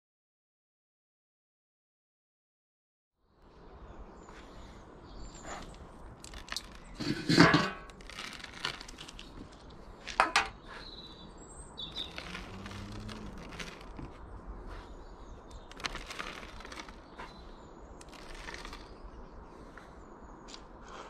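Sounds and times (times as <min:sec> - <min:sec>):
small birds chirping: 0:03.2 - 0:07.1, 0:08.0 - 0:21.0
dry bird food rattling onto wood: 0:05.5 - 0:10.7, 0:11.8 - 0:14.2, 0:15.5 - 0:17.4, 0:18.0 - 0:19.0
metal tin knocking: 0:06.4 - 0:08.8.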